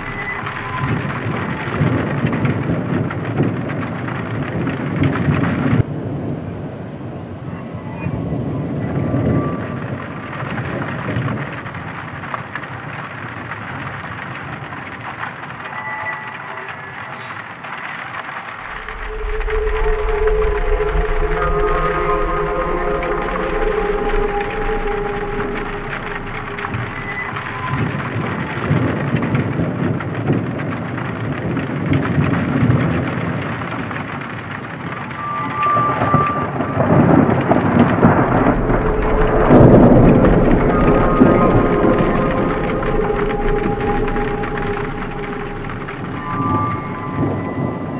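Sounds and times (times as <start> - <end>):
dark ambient music: 0.0 - 5.9, 15.0 - 47.9
thunder rumbling: 0.0 - 6.8, 17.4 - 47.9
rain: 0.0 - 47.9.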